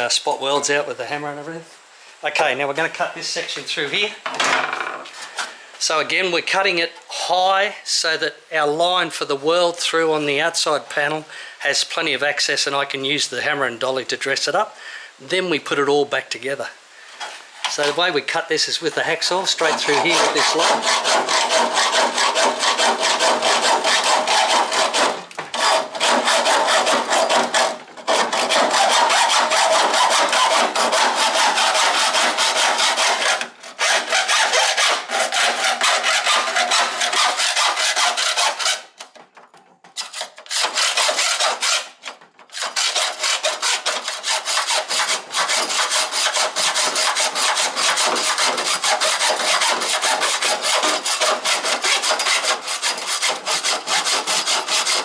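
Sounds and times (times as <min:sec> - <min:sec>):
hacksaw cutting sheet steel: 0:19.0 - 0:39.2, 0:39.9 - 0:55.0.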